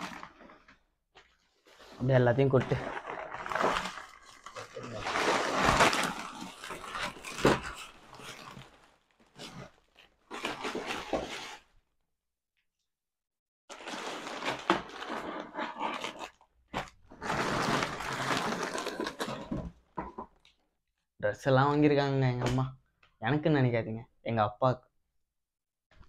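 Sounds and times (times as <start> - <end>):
shopping bags rustling: 0.0 - 11.6, 16.0 - 19.6.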